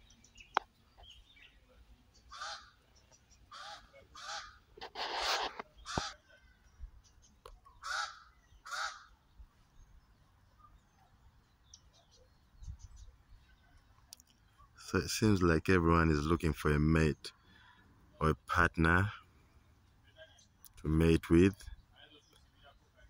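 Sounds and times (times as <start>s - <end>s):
crows cawing: 2.3s - 2.8s, 3.5s - 4.6s, 5.8s - 6.3s, 7.8s - 9.2s.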